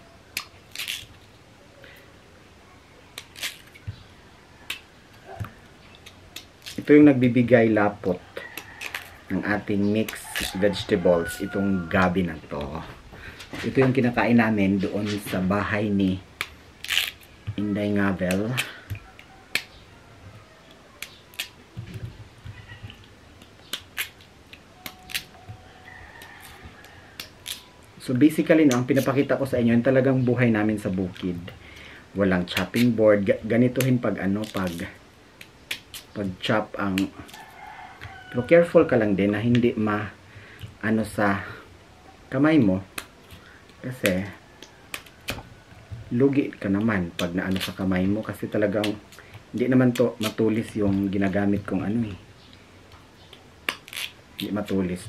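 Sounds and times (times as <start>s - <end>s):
knife cutting taro: 9.9s - 12.7s.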